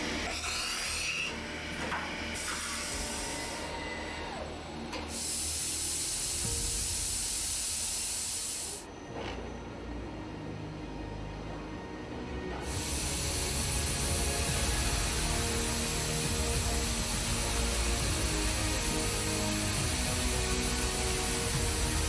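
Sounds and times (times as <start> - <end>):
loud hiss: 5.1 - 8.9, 12.6 - 22.0
steady machine hiss: 5.1 - 8.9, 12.6 - 22.0
machine spindle whirring: 12.6 - 22.0.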